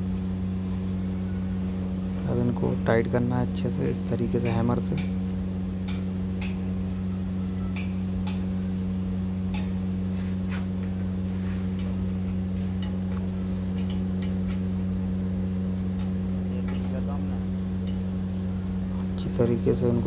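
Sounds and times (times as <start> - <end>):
low hum: 0.0 - 20.0
hammer striking spanner: 4.4 - 5.2, 5.8 - 6.7, 7.7 - 8.5, 9.5 - 9.8.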